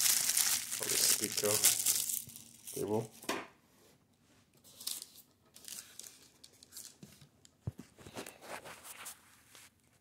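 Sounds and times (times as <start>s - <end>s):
plastic wrap and foam rustling: 0.0s - 3.2s.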